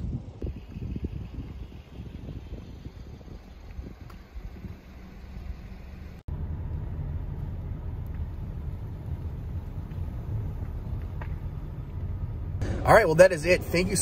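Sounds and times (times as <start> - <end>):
wind on microphone: 0.0 - 5.0
car cabin rumble while driving: 0.0 - 14.0.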